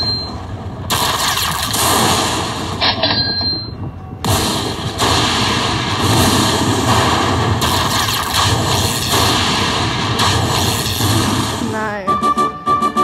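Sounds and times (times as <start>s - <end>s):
slot machines and casino din: 0.0s - 0.4s, 2.8s - 4.4s, 11.6s - 13.0s.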